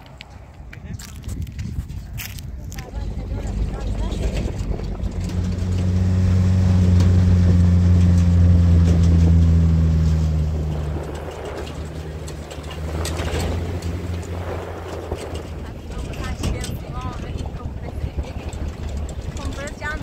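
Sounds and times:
low rumble: 0.0 - 20.0
vehicle engine humming: 0.0 - 20.0.

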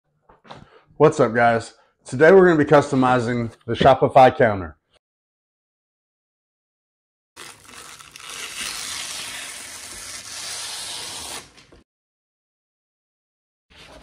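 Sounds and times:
plastic wrap crinkling: 7.4 - 9.5.

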